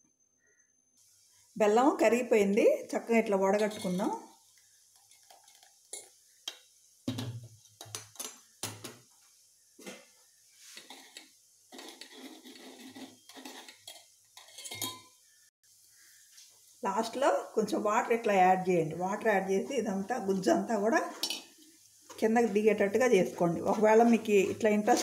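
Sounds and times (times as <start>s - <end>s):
metal utensils clinking and tapping: 3.5s - 4.2s, 5.0s - 9.0s, 10.8s - 15.2s, 21.1s - 21.6s
spoon scraping in strainer mesh: 3.6s - 4.2s, 10.6s - 15.1s.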